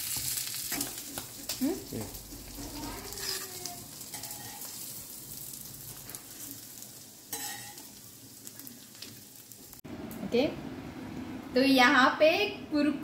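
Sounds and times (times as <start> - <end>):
oil sizzling in a frying pan: 0.0 - 10.1.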